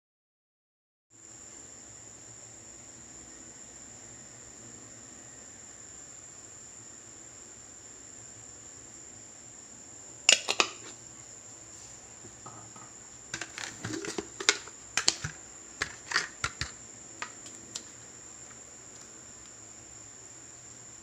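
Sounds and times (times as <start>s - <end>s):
crickets trilling: 1.2s - 21.0s
kitchen containers clicking: 10.3s - 11.0s, 12.5s - 17.9s.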